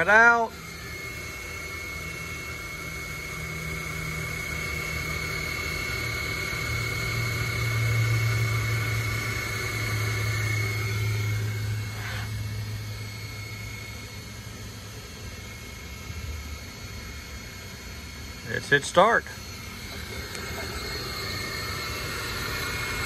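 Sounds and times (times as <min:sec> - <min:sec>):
stepper motors humming and whining: 0:00.0 - 0:23.0.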